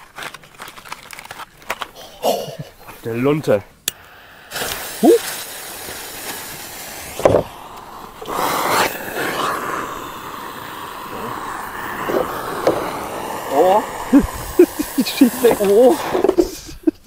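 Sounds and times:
firework hissing: 0:02.7 - 0:17.0
firework crack: 0:03.8 - 0:17.0.

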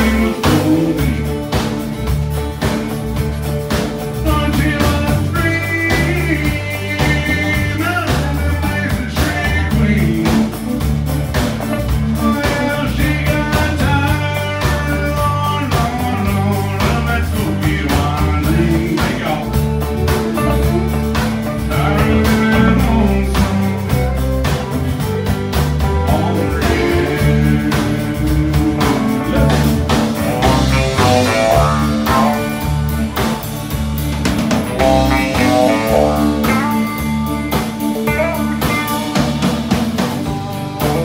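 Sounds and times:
drums: 0:00.0 - 0:41.0
strummed acoustic guitar: 0:00.0 - 0:41.0
fiddle melody: 0:15.2 - 0:41.0.

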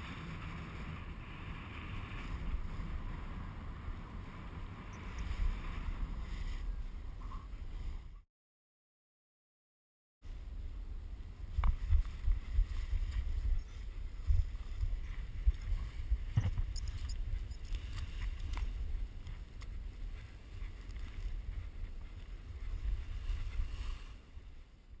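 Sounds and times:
wind buffeting microphone: 0:00.0 - 0:08.2, 0:10.3 - 0:25.0.

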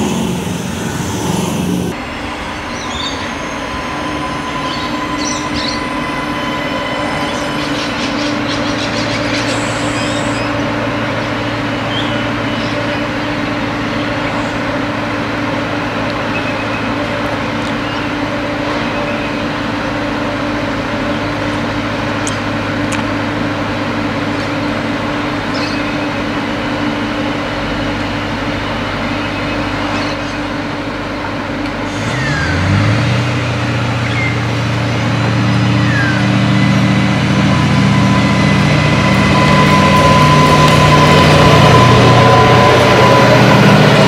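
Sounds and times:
thin high whine: 0:00.0 - 0:10.7, 0:33.8 - 0:44.0
diesel railcar engine: 0:00.0 - 0:44.0.

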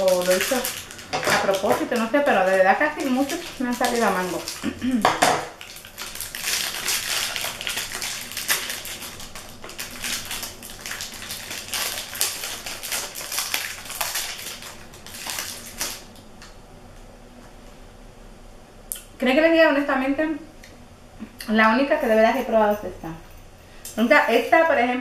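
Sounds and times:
plastic wrapper crinkling: 0:00.0 - 0:16.3.

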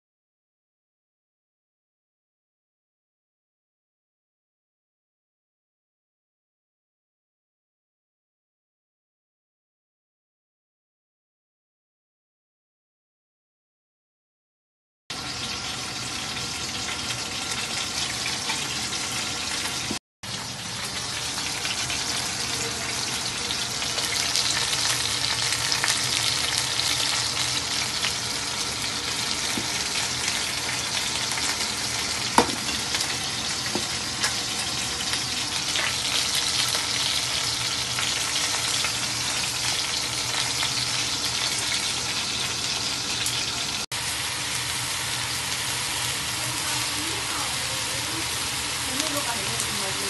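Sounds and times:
onions sizzling in hot oil: 0:15.1 - 0:50.0
sharp knock on pot: 0:32.4 - 0:32.6.

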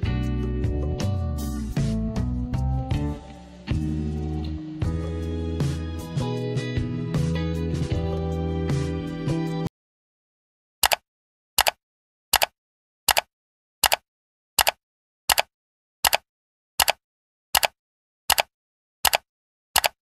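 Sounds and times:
sharp double clicks: 0:10.8 - 0:11.0, 0:11.6 - 0:12.5, 0:13.1 - 0:14.0, 0:14.6 - 0:16.2, 0:16.8 - 0:17.0, 0:17.6 - 0:19.2, 0:19.8 - 0:20.0.

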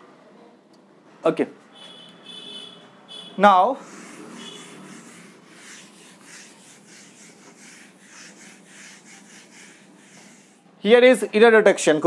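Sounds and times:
duster rubbing on whiteboard: 0:03.4 - 0:10.7.

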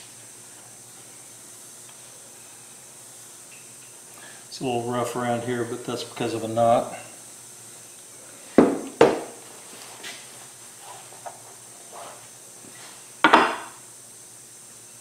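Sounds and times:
tools knocking on wooden bench: 0:08.6 - 0:09.4, 0:13.2 - 0:13.7.

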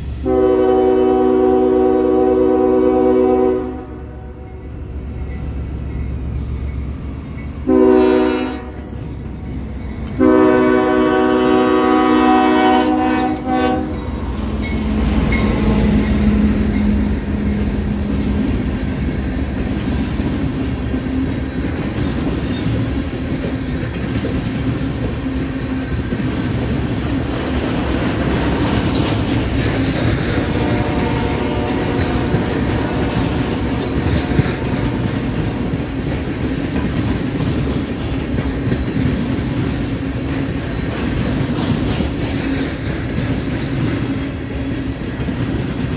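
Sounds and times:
locomotive running by: 0:00.0 - 0:45.9
locomotive horn chord: 0:00.2 - 0:04.6, 0:07.6 - 0:09.0, 0:10.2 - 0:14.0, 0:30.4 - 0:35.2
train wheels clickety-clack: 0:05.0 - 0:45.9.

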